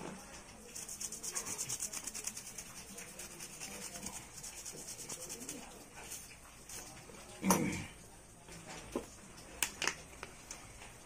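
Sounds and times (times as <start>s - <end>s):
brush scrubbing circuit board: 0.6s - 6.9s.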